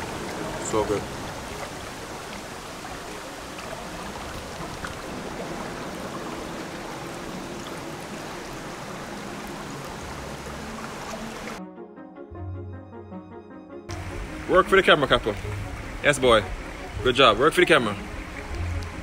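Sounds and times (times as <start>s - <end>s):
river rushing over rocks: 0.0s - 11.6s.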